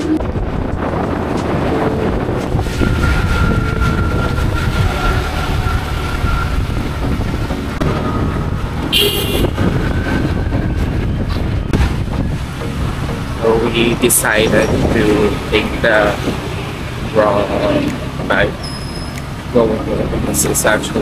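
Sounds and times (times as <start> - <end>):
motorbike riding in wind: 0.0 - 21.0
high-pitched horn toot: 8.9 - 9.6.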